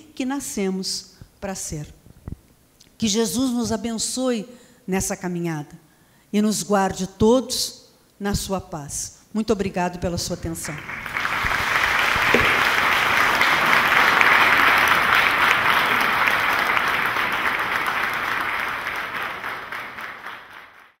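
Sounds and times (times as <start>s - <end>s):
audience applauding: 10.6s - 21.0s.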